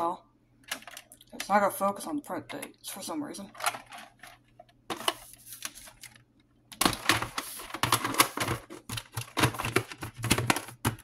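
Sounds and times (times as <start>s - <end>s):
plastic tape case clattering: 3.5s - 11.0s.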